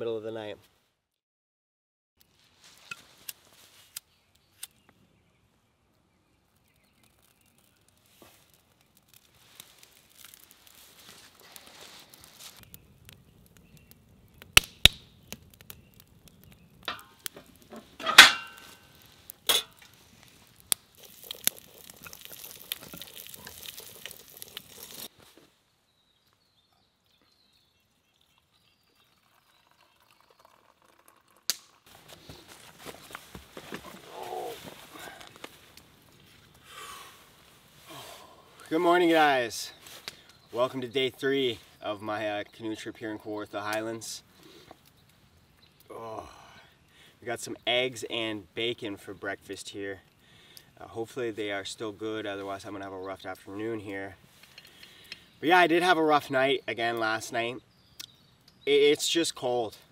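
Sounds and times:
campfire crackling and popping: 2.2 - 25.5, 26.2 - 59.9
fire hissing: 6.6 - 25.5, 31.9 - 42.3, 43.4 - 51.6, 53.8 - 56.4.

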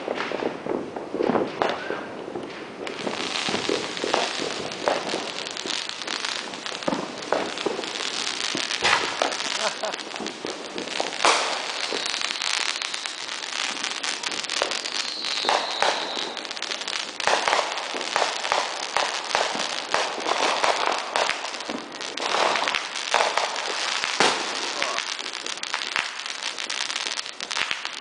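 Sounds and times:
fireworks banging and crackling: 0.0 - 28.0
firework high whistle: 3.0 - 23.5.

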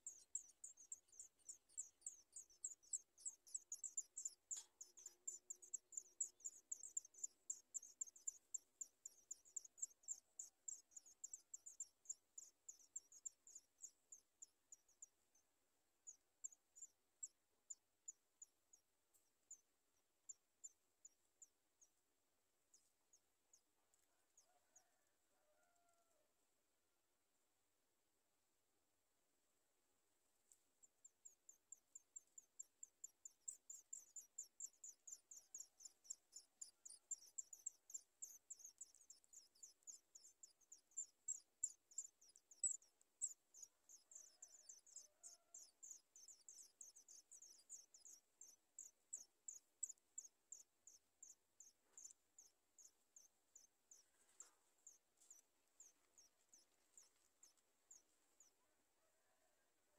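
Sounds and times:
nestlings begging cheeps: 33.1 - 54.0.

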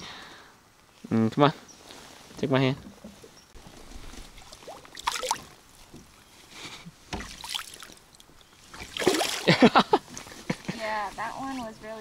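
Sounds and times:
water sloshing and splashing: 2.1 - 6.3, 7.0 - 10.4
people laughing: 9.4 - 10.8.

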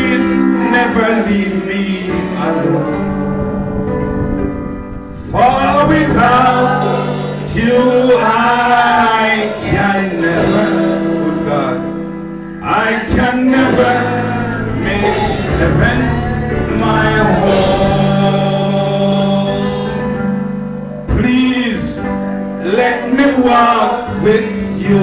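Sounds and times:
choir singing worship song: 0.0 - 25.0
sustained instrumental accompaniment: 0.0 - 25.0.

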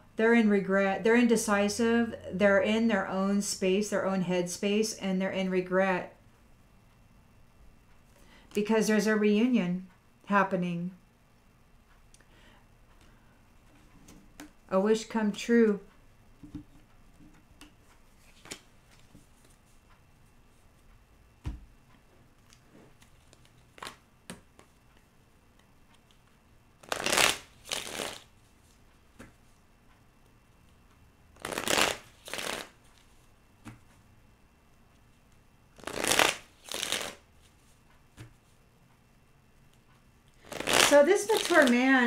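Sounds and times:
cards being shuffled: 17.6 - 19.8, 22.4 - 25.1, 26.0 - 29.5, 31.4 - 33.9, 35.8 - 38.6, 40.4 - 42.0.

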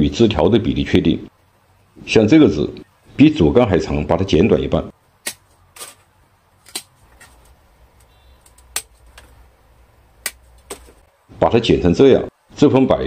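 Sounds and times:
pruning shears snipping branches: 6.6 - 9.3.

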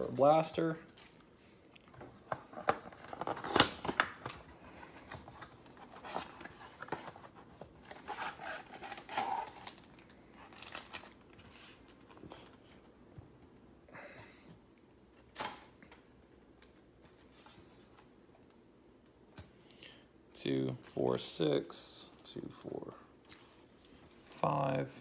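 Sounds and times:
cellophane crinkling and rustling: 1.8 - 12.6.

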